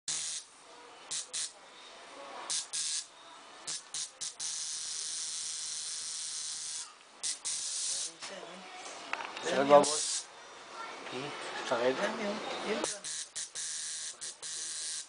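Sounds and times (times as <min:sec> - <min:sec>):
tattoo machine buzzing: 0:00.1 - 0:00.5, 0:01.1 - 0:01.6, 0:02.5 - 0:03.1, 0:03.7 - 0:08.1, 0:09.8 - 0:10.3, 0:12.8 - 0:15.0.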